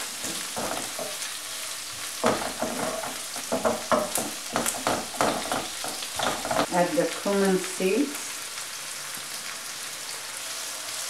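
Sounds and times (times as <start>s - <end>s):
wooden spoon scraping a pan: 0.0s - 6.8s
onions sizzling in oil: 0.0s - 11.0s.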